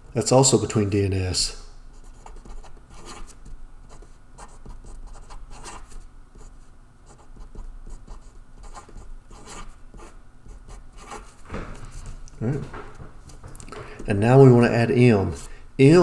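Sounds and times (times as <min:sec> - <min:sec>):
marker pen scratching on paper: 0:01.9 - 0:12.8, 0:15.2 - 0:15.6.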